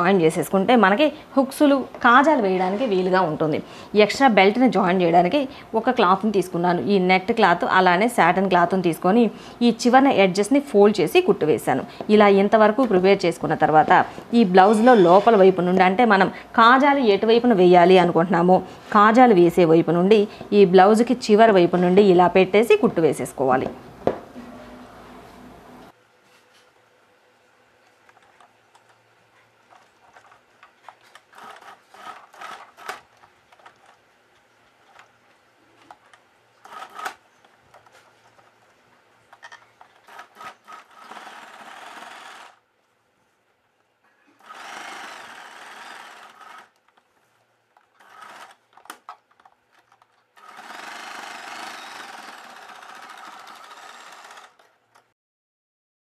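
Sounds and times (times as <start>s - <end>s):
electric sewing machine stitching: 31.3s - 33.8s, 36.6s - 37.2s, 40.0s - 42.6s, 44.4s - 46.8s, 48.0s - 48.6s, 50.4s - 54.7s.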